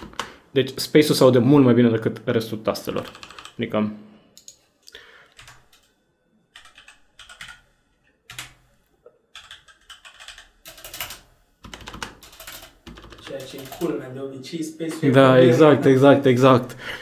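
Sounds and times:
mechanical keyboard typing: 0.0s - 0.4s, 2.9s - 3.6s, 5.3s - 5.9s, 6.6s - 7.6s, 8.3s - 8.6s, 9.3s - 13.9s.

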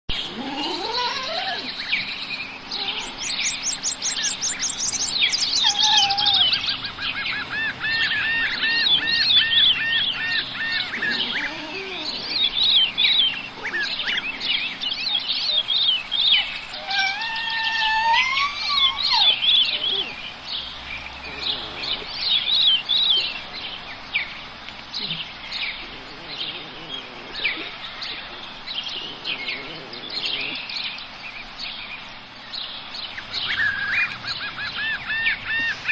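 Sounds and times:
birds chirping and singing: 0.1s - 35.9s.

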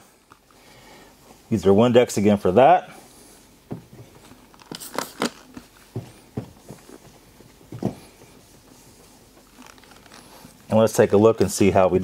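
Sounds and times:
towel rubbing plastic lens: 8.3s - 11.1s.

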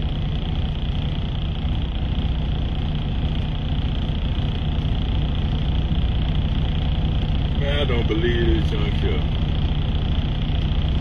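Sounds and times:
diesel truck engine idling: 0.0s - 11.0s.

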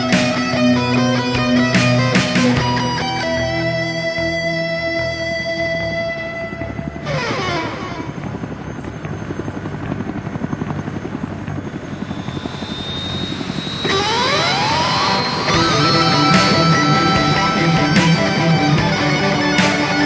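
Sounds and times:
fast rotor-like chopping: 12.0s - 20.0s.

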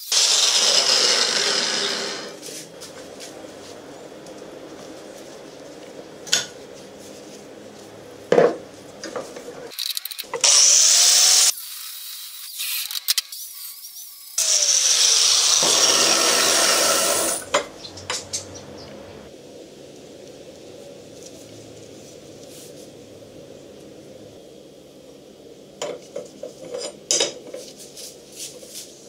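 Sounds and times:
angle grinder grinding steel: 0.0s - 2.4s, 10.4s - 17.5s.

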